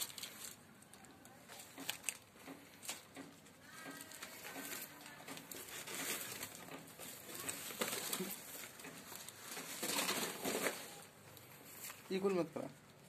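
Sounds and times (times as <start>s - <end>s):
dogs scuffling on rubble: 1.6s - 12.0s.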